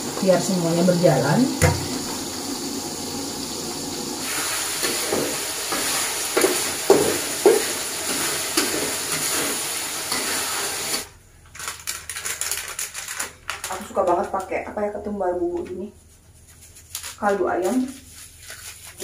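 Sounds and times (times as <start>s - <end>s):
tap water running into sink: 0.0s - 8.6s
food sizzling in hot oil: 0.0s - 11.1s
utensil scraping a wok: 4.2s - 11.1s.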